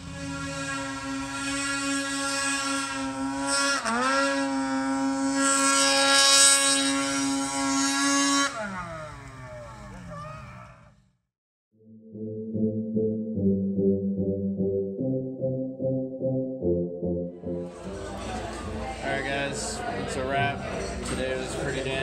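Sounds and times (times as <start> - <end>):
snowmobile engine at high revs: 0.0 - 11.0.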